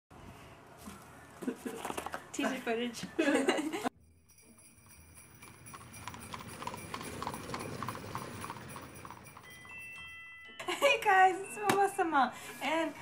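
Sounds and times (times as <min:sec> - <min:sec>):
high ringing chime: 0:04.0 - 0:12.8
horse hoofbeats clip-clopping: 0:04.4 - 0:10.2.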